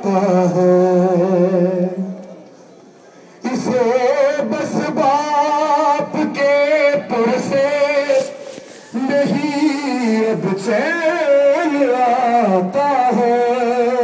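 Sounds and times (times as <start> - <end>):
men chanting a lament: 3.4 - 14.0.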